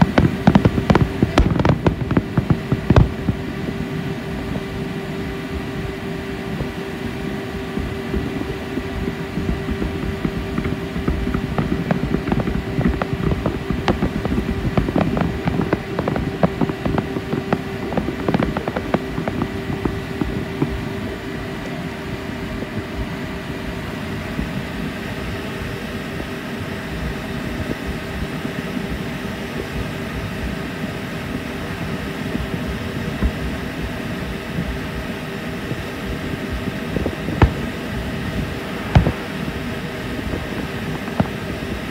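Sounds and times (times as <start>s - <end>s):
distant fireworks popping: 0.0s - 25.7s, 26.8s - 41.9s
boat engine humming: 0.0s - 41.9s.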